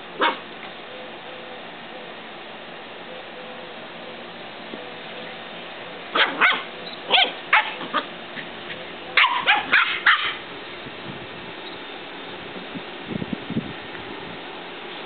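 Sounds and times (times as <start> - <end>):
puppies yipping and barking: 0.2 - 0.5, 6.1 - 10.4.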